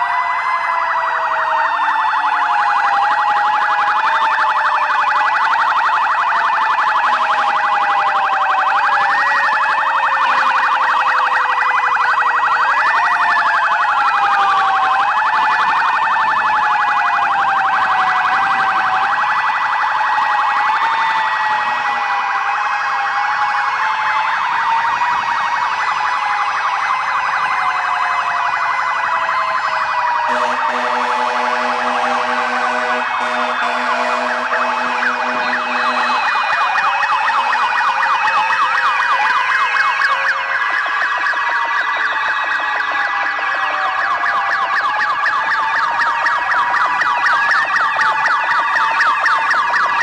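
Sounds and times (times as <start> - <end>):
police sirens wailing and yelping: 0.0 - 50.0
pulsing low horn tone: 30.3 - 36.2.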